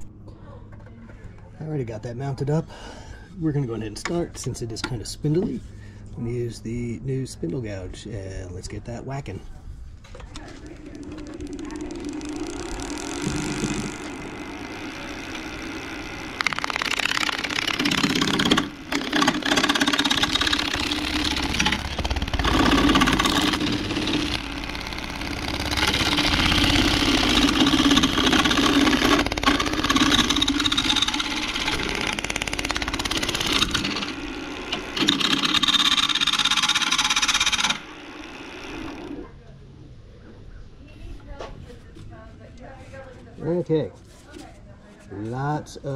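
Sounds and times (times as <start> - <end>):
lathe motor hum: 10.6 - 39.3
gouge cutting wood on lathe: 10.8 - 39.2.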